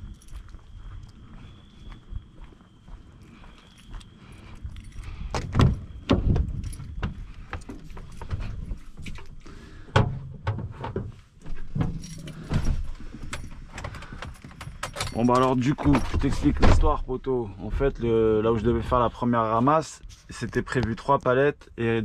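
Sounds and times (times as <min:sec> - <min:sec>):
keys jangling: 0:03.7 - 0:05.4, 0:06.4 - 0:09.5, 0:11.7 - 0:16.6
knocks clatters and thumps: 0:05.3 - 0:17.0.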